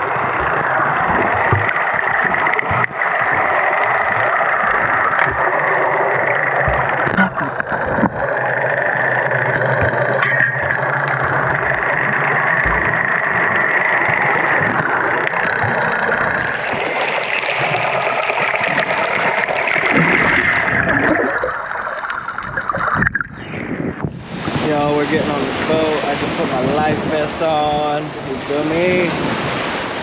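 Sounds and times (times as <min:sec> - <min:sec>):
underwater rushing and gurgling: 0:00.0 - 0:30.0.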